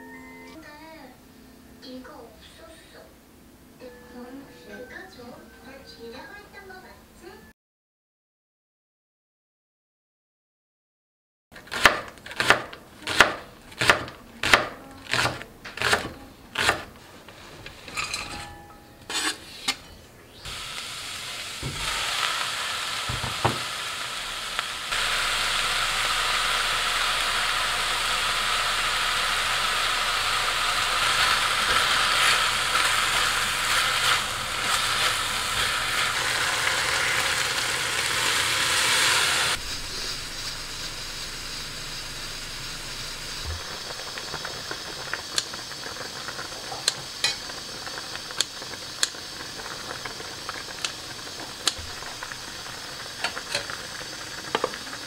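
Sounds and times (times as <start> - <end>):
vegetables sizzling in a pan: 11.6 - 18.5, 20.3 - 55.0
knife chopping on wooden board: 11.7 - 16.8.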